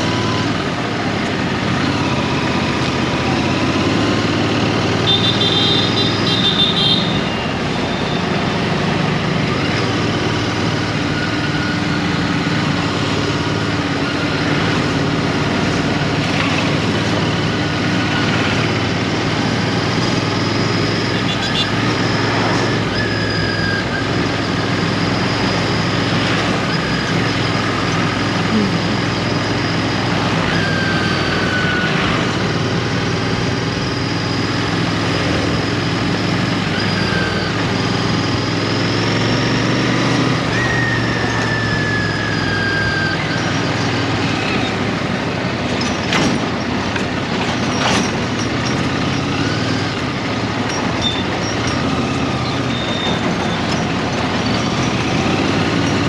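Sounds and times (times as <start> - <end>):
trucks passing: 0.0 - 56.0
high squealing tones: 1.8 - 56.0
motorcycle engine running: 24.0 - 30.5.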